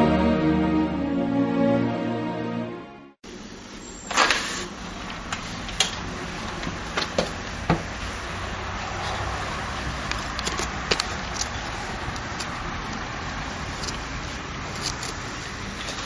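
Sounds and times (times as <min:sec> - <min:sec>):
steady background noise: 0:03.2 - 0:16.0.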